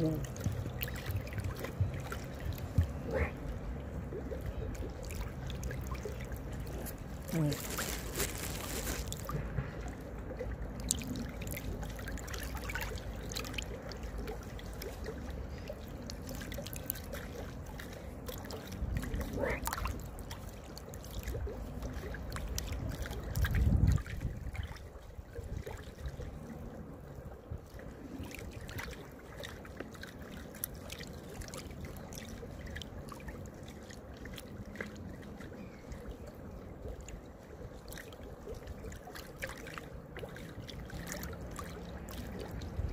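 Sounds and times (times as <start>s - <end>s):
wind rumble on microphone: 0.0s - 12.3s, 18.0s - 29.1s, 39.9s - 42.9s
river water lapping and splashing: 0.0s - 42.9s.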